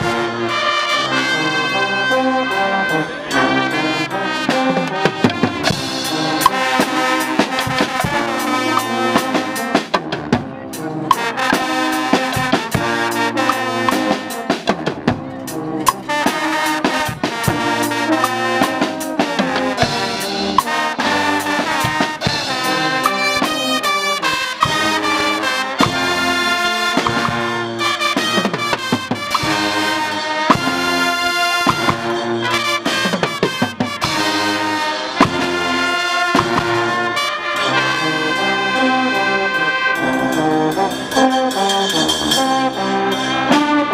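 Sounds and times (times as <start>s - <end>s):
brass band playing: 0.0s - 43.9s
drum kit and cymbals: 3.0s - 38.8s, 39.4s - 43.9s.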